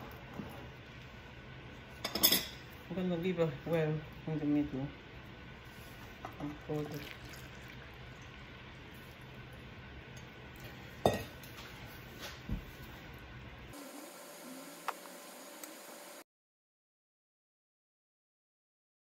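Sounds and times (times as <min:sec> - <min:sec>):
liquid squishing: 0:06.8 - 0:09.4
metal bowls clinking: 0:11.0 - 0:11.4.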